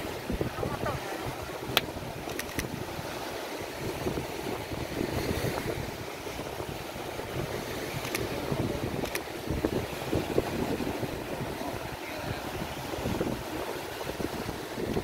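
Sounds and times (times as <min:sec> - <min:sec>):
surf washing in: 0:00.0 - 0:15.0
wind buffeting microphone: 0:00.0 - 0:15.0.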